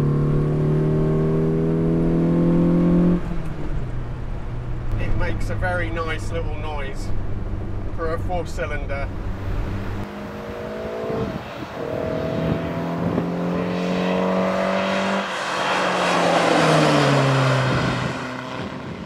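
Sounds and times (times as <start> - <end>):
car engine pulling hard: 0.0 - 19.0
road and wind noise: 0.0 - 19.0
car passing by: 8.9 - 19.0.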